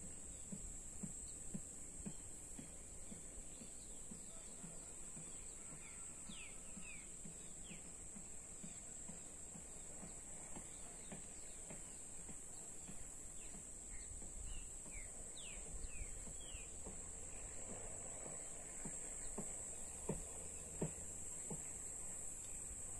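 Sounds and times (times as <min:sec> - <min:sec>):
birds chirping: 0:00.0 - 0:22.9
steady high-pitched hiss: 0:00.0 - 0:22.9
wind rumbling on microphone: 0:13.9 - 0:17.9.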